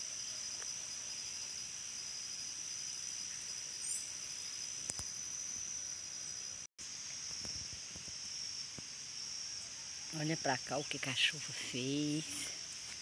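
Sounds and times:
insects chorus: 0:00.0 - 0:13.0
single click: 0:04.9 - 0:05.1.

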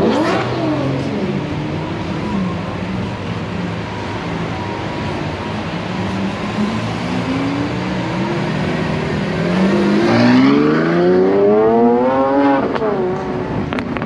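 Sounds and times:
car engine accelerating: 0:05.1 - 0:14.0.

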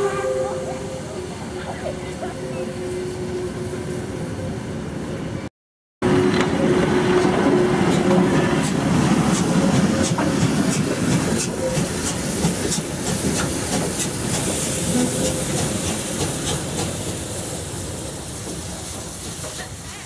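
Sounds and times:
steam locomotive moving slowly: 0:00.0 - 0:20.0
steam hissing: 0:08.4 - 0:20.0.

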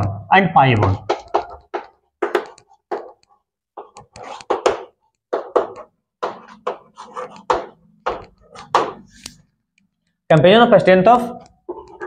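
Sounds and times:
chalk writing on blackboard: 0:01.0 - 0:09.4.

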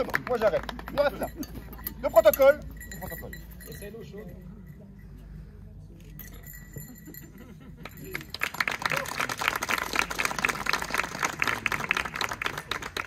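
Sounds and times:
crowd applauding: 0:00.0 - 0:01.3, 0:07.8 - 0:13.0.

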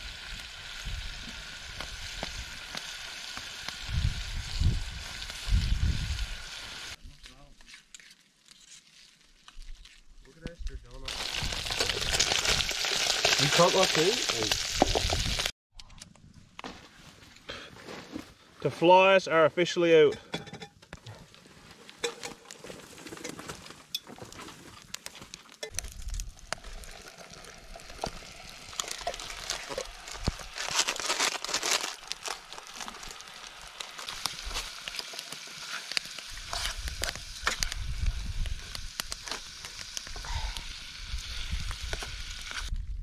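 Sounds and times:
food sizzling: 0:00.0 - 0:07.0, 0:11.1 - 0:15.5, 0:25.6 - 0:42.7.

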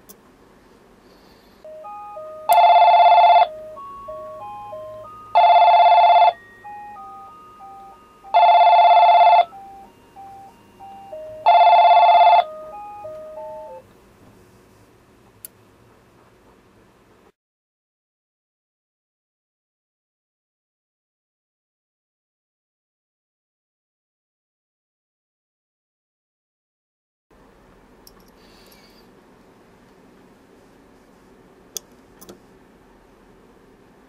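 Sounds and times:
beeping tune: 0:01.6 - 0:13.8
electronic telephone ringing: 0:01.7 - 0:13.8.

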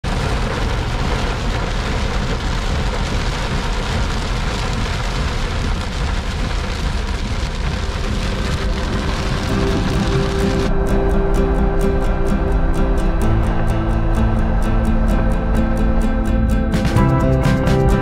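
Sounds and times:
heavy rain on car roof: 0:00.0 - 0:10.8
low rumble: 0:00.0 - 0:18.0.

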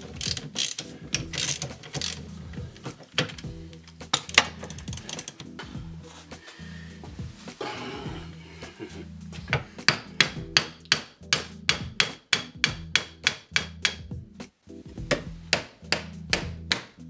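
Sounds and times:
hammer striking metal: 0:09.8 - 0:14.1, 0:15.1 - 0:17.0.

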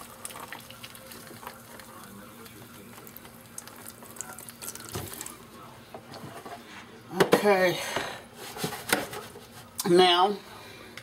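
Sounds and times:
liquid pouring into bowl: 0:00.0 - 0:05.6.

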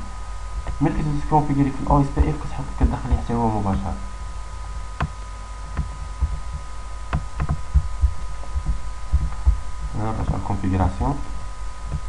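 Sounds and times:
steady thin whine: 0:00.0 - 0:12.0
computer mouse clicks: 0:05.0 - 0:07.6
dull thumps on desk: 0:05.0 - 0:10.4.

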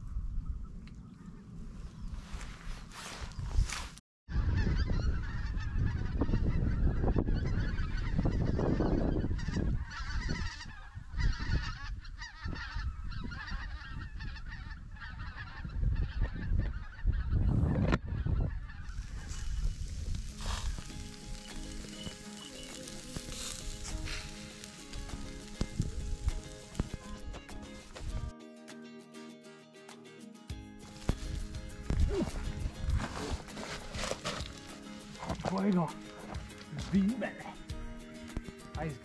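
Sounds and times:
geese honking: 0:04.6 - 0:17.3, 0:18.2 - 0:28.0.

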